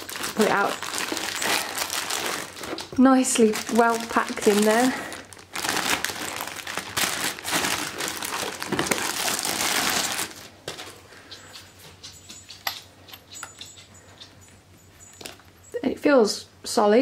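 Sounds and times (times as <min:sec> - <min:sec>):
plastic bag crinkling: 0:00.0 - 0:11.3.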